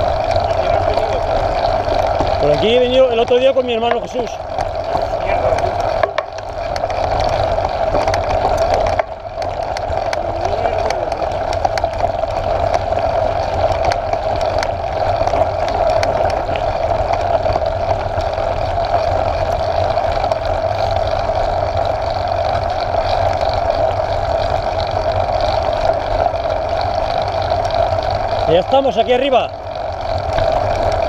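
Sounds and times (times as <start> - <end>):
bike tyres rolling on gravel: 0.0 - 31.0
rattles and clicks: 0.0 - 31.0.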